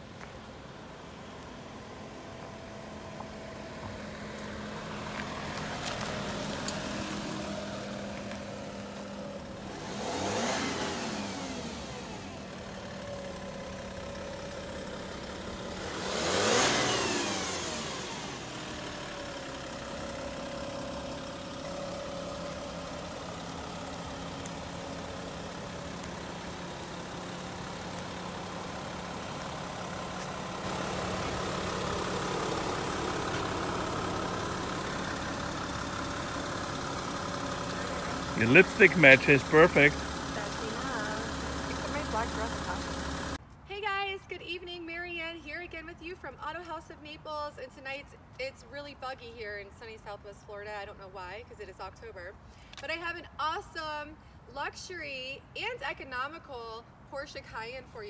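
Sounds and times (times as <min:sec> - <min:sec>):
car engine driving past: 0:37.2 - 0:43.4.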